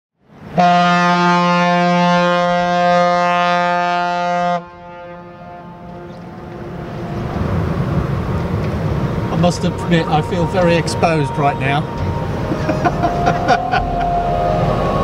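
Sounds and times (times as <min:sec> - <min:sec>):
ship's horn blast: 0:00.5 - 0:15.0
low rumble: 0:05.2 - 0:15.0.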